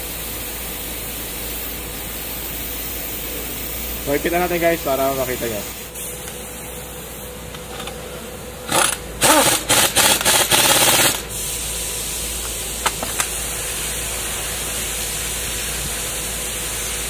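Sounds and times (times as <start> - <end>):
steady air hiss: 0.0 - 7.5, 8.1 - 17.0
impact wrench hammering: 8.7 - 11.3, 12.4 - 13.4.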